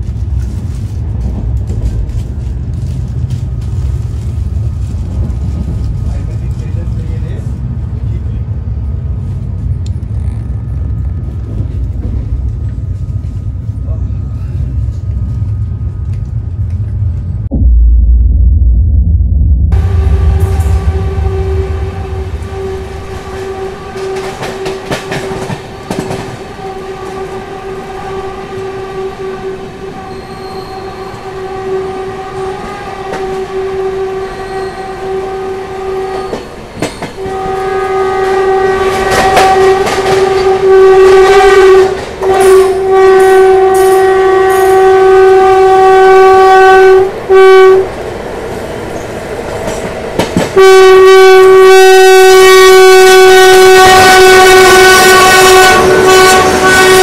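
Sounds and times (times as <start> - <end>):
locomotive air horn blasts: 19.8 - 36.4, 37.2 - 47.9, 50.6 - 57.0.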